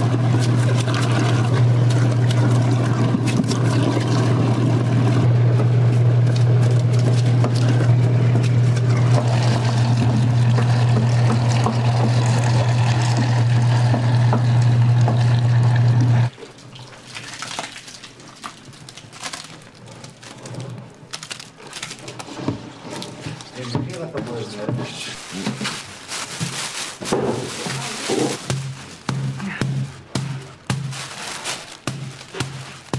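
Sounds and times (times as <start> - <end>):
wet scraping and dribbling: 0.0 - 5.3, 5.9 - 32.9
electric food grinder humming: 0.0 - 16.3.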